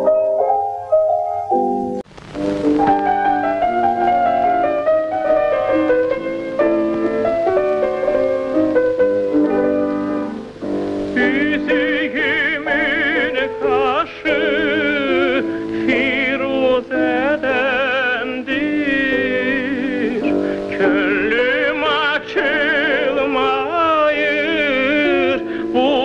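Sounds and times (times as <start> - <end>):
high melody with wide vibrato: 0.0 - 16.3.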